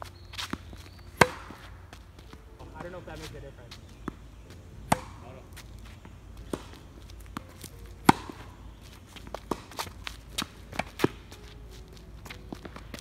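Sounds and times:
footsteps on hard court: 0.0s - 13.0s
tennis ball bouncing: 0.0s - 13.0s
racket striking tennis ball: 0.3s - 13.0s.

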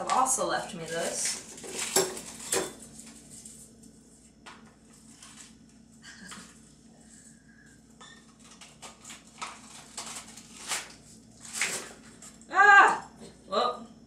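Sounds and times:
plastic pouch crinkling: 8.3s - 12.1s.

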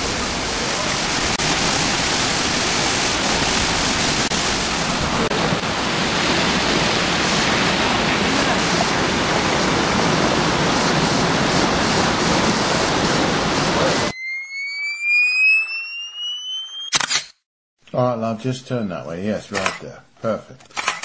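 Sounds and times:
stream and waterfall rushing: 0.0s - 14.1s.

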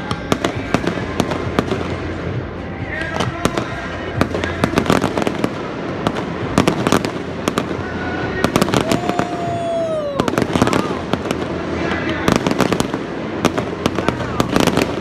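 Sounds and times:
fireworks bangs and crackles: 0.0s - 15.0s
falling firework whistle: 8.6s - 11.0s.

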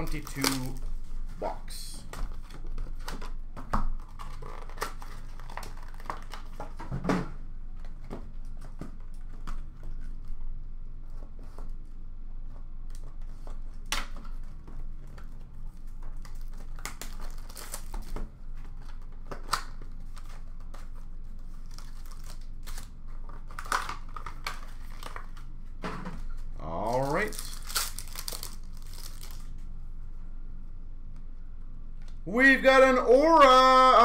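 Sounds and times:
plastic wrap crinkling and tearing: 0.0s - 1.0s, 2.4s - 6.8s, 15.9s - 18.1s, 18.7s - 25.5s, 26.8s - 29.6s
low hum: 20.2s - 34.0s.

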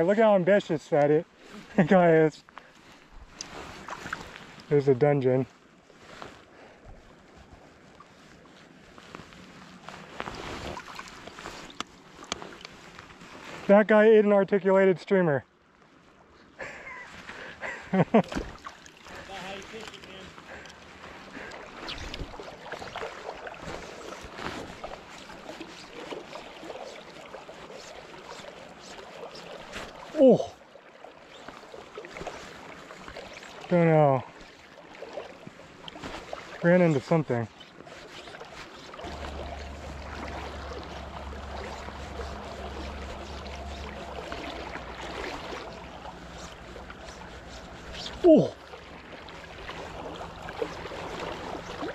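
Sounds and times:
river water lapping and splashing: 0.0s - 51.9s
low rumble: 39.0s - 47.8s.

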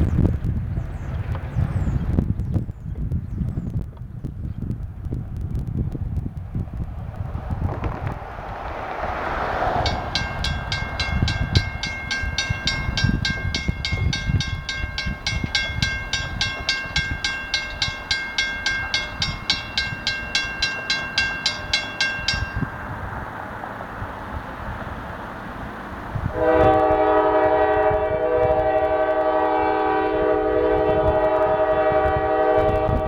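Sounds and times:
car passing: 6.8s - 13.0s, 18.9s - 26.4s
crossing warning bell ringing: 9.7s - 23.1s.

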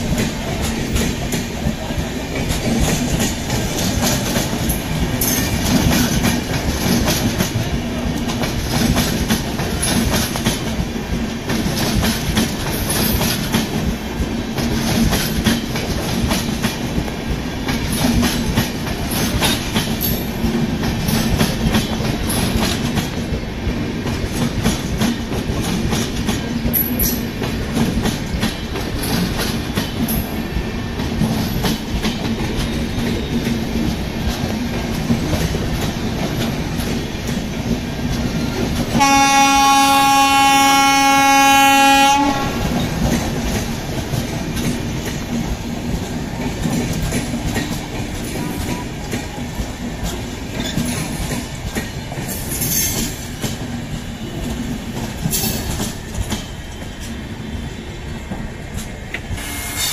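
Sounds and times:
wheels clicking over rail joints: 0.0s - 39.9s, 42.6s - 57.2s
train wheels rumbling on rails: 0.0s - 59.9s.

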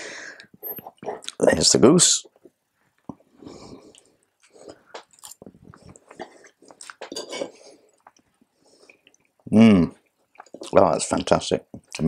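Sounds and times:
cutlery clinking and scraping plate: 7.0s - 7.7s.

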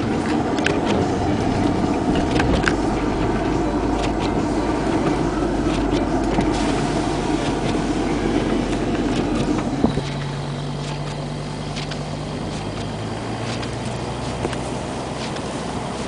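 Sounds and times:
car engine under load: 0.0s - 16.0s
snow rumbling against car: 0.0s - 16.0s.

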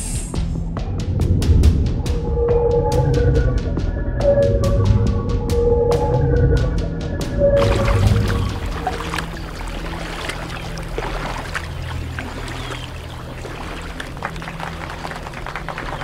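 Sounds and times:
water splashing and sloshing: 7.4s - 16.0s
low motor hum: 7.6s - 16.0s.

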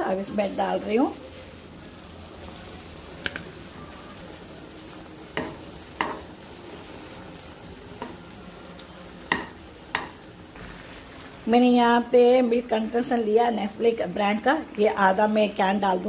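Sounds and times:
spoon stirring food in a pan: 4.8s - 7.2s.

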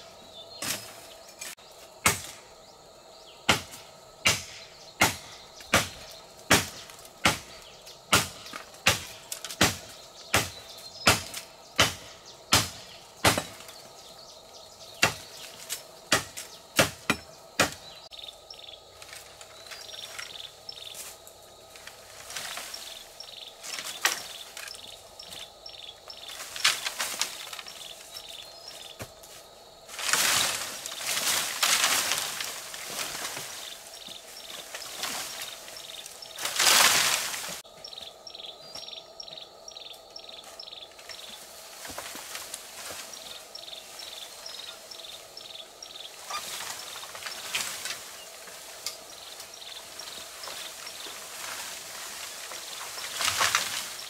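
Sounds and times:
bamboo leaves rustling: 0.0s - 54.0s
blade chopping bamboo: 2.0s - 2.4s, 3.5s - 13.8s, 15.0s - 18.0s.

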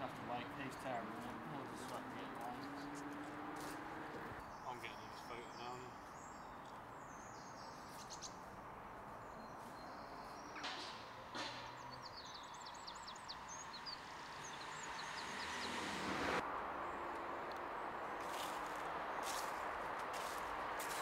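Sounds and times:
small bird chirping: 4.4s - 8.5s, 9.2s - 15.8s.

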